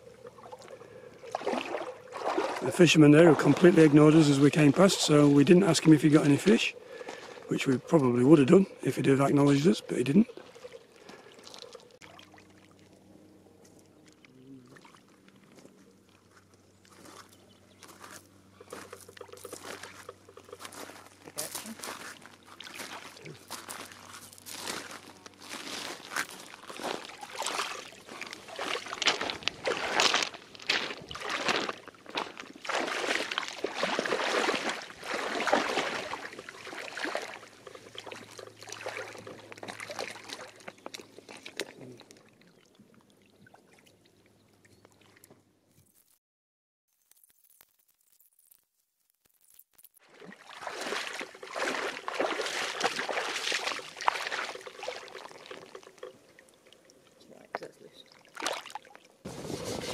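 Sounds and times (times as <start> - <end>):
small waves lapping: 0.0 - 45.4, 50.0 - 59.9
wading through shallow water: 0.0 - 45.4, 50.0 - 59.9
footsteps crunching on pebbles: 15.4 - 41.8.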